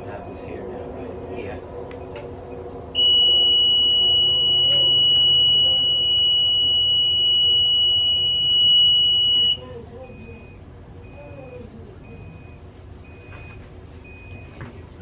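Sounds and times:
faint short beep: 3.0 - 11.3
high-pitched electronic alarm tone: 3.0 - 11.3.

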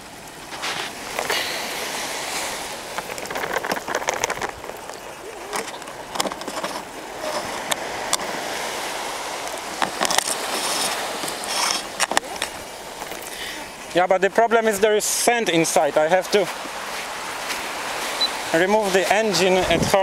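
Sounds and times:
surf: 0.0 - 20.0
propeller clicking and scraping: 2.8 - 8.3, 9.4 - 13.3.

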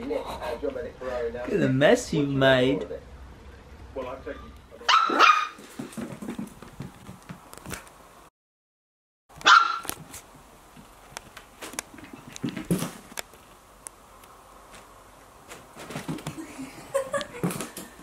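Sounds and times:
puppy barking: 4.8 - 5.6, 9.4 - 9.9.

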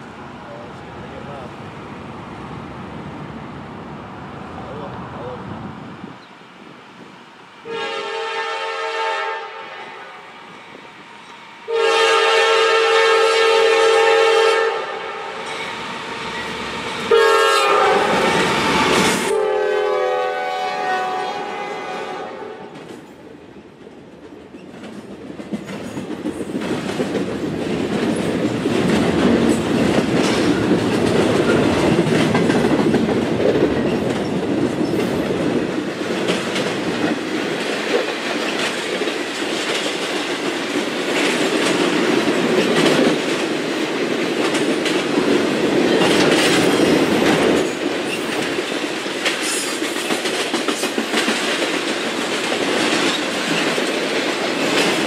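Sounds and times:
diesel locomotives passing: 0.0 - 55.0
train horn blasts: 7.6 - 10.3, 11.7 - 15.7, 17.0 - 22.7
train wheels clickety-clack: 17.9 - 19.4, 22.7 - 55.0.

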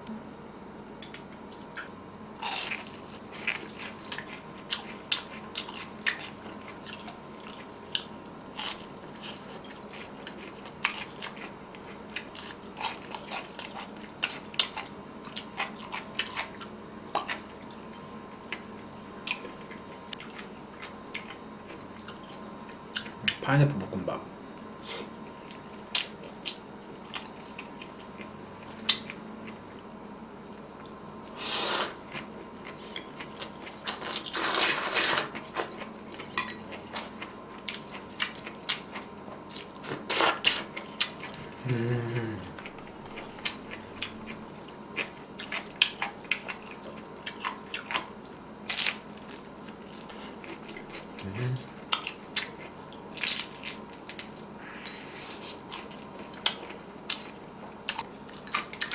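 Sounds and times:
person humming: 41.5 - 42.8, 51.2 - 51.7
chewing: 42.4 - 54.3, 55.3 - 58.9.

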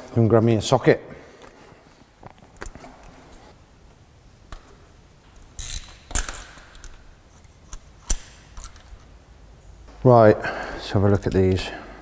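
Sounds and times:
hand tools clinking: 4.5 - 9.2, 10.6 - 12.0.

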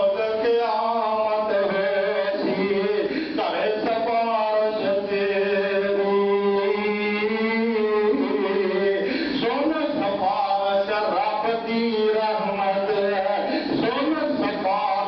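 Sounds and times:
man chanting: 0.0 - 15.0.

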